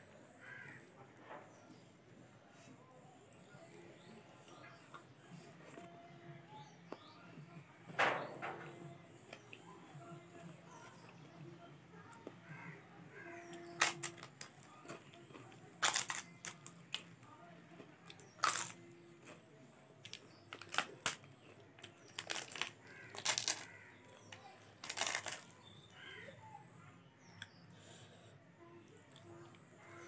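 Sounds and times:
crisp wafer crunching: 0:13.2 - 0:19.4, 0:20.0 - 0:26.3.

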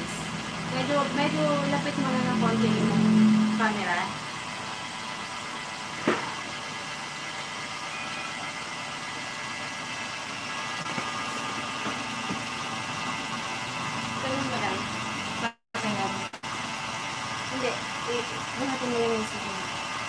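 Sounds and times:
stand mixer motor humming: 0:00.0 - 0:20.0
sharp knock: 0:06.0 - 0:06.4.

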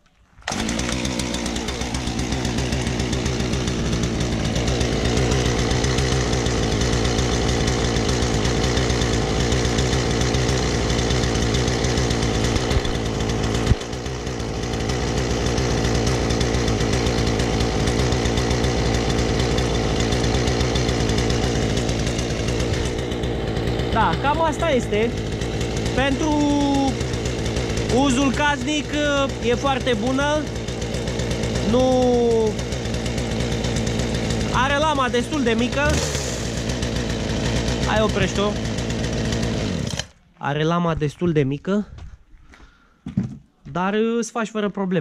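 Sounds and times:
starter cord pull: 0:00.4 - 0:03.3, 0:11.6 - 0:14.1, 0:39.4 - 0:40.2
chainsaw engine idling: 0:00.4 - 0:40.4.

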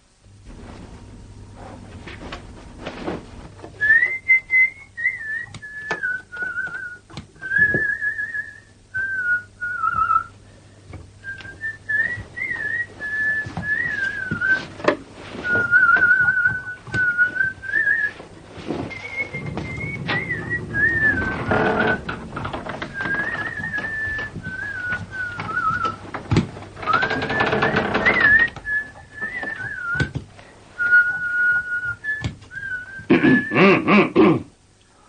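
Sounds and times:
person whistling a tune: 0:03.8 - 0:10.3, 0:11.2 - 0:14.7, 0:15.4 - 0:18.2, 0:18.9 - 0:21.9, 0:22.9 - 0:26.0, 0:26.9 - 0:30.2, 0:30.8 - 0:33.7
sharp clicks and knocks: 0:19.3 - 0:30.3.

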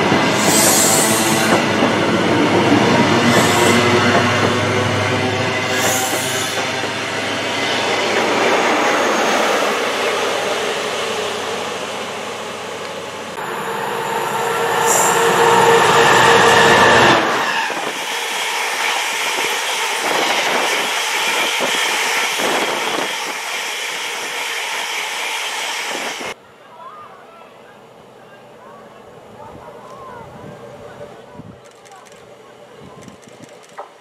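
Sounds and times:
diesel passenger train rushing by: 0:00.0 - 0:26.4
freight train rumbling past: 0:00.0 - 0:26.4.

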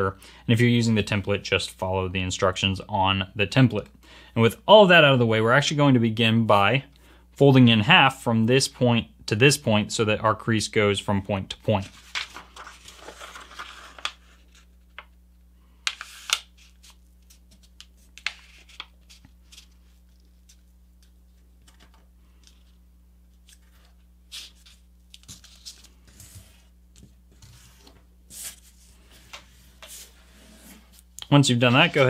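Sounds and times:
paper rustling and crinkling: 0:11.8 - 0:15.1, 0:15.9 - 0:22.8, 0:23.4 - 0:30.2.

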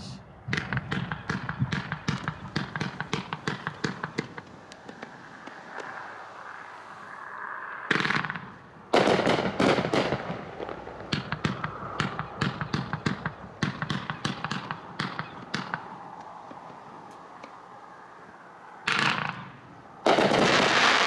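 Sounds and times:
fireworks reports: 0:00.0 - 0:05.4, 0:07.9 - 0:16.0, 0:18.9 - 0:21.0
fireworks popping and crackling: 0:00.5 - 0:06.0, 0:07.9 - 0:16.8, 0:18.9 - 0:21.0.

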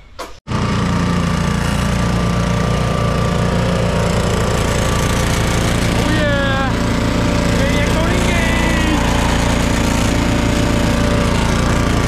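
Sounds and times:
engine droning steadily: 0:00.6 - 0:12.0.

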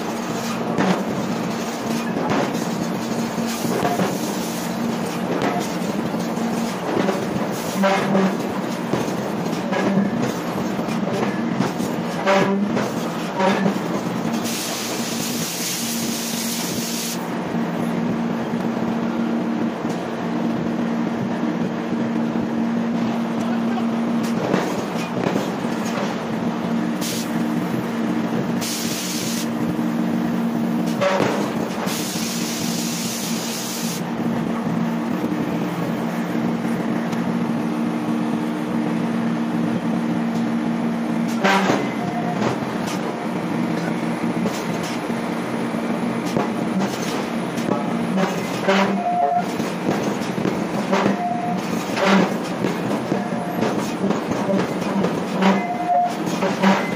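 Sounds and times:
heavy machinery humming: 0:00.0 - 0:56.9
loud hiss: 0:14.4 - 0:17.3, 0:27.0 - 0:27.4, 0:28.6 - 0:29.6, 0:31.8 - 0:34.1.

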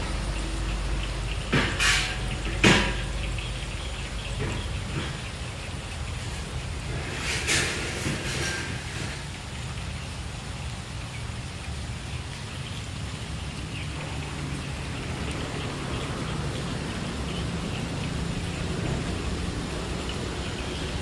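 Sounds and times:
distant diesel locomotive rumble: 0:00.0 - 0:21.0
steady rain falling: 0:00.0 - 0:21.0.

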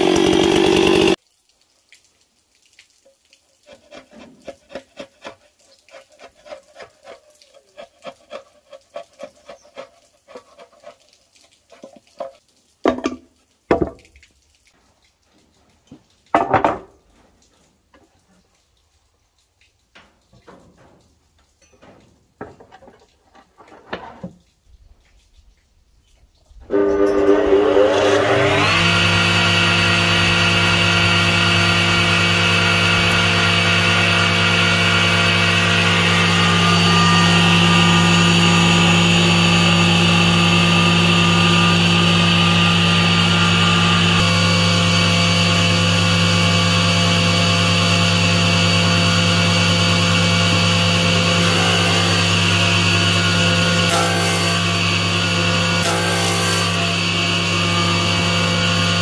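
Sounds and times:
table saw motor humming: 0:00.0 - 0:01.2, 0:26.7 - 0:59.0.

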